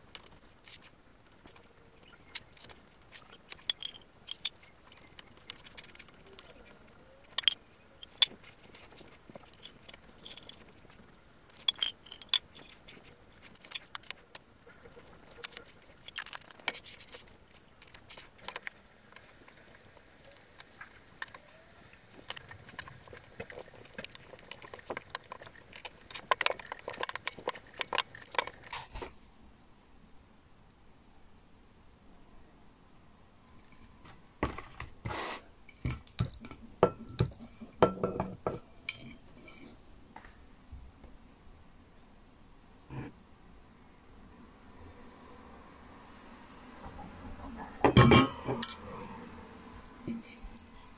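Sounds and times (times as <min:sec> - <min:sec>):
clicks and crackles of glued rubber: 0:00.0 - 0:29.2.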